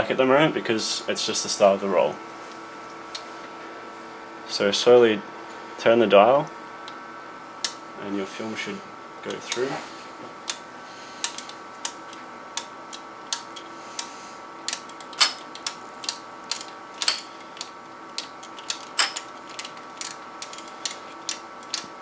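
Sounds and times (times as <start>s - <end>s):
machine humming: 0.0s - 22.0s
scanner sharp clicks: 7.6s - 7.8s, 10.4s - 21.9s.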